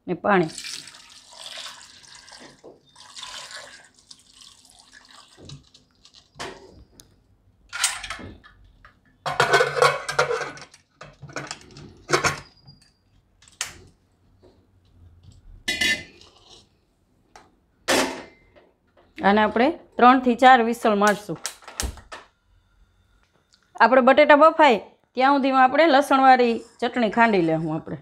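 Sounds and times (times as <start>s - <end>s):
water pouring into a pot: 0.5s - 6.4s
metal lid clanking and scraping: 9.3s - 12.5s, 15.7s - 16.3s.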